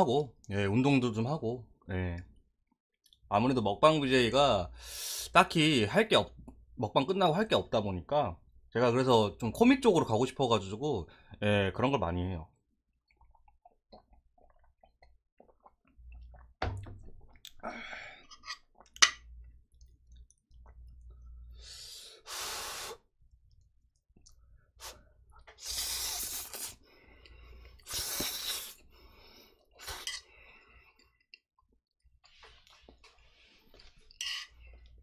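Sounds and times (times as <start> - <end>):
noodles slurped: 24.3 - 28.9.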